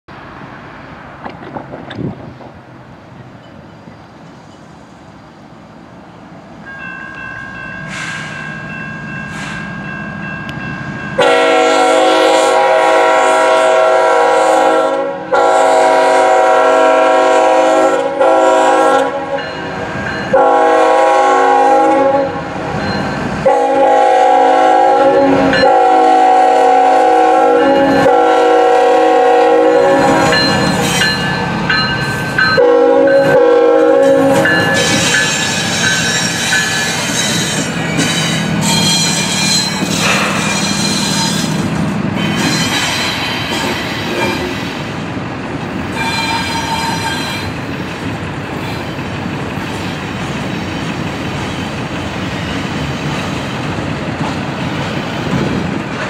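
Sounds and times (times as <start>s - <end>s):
diesel locomotives rumbling: 0.1s - 56.0s
train horn blasts: 11.2s - 19.7s, 20.3s - 22.8s, 23.4s - 31.1s, 32.6s - 35.4s.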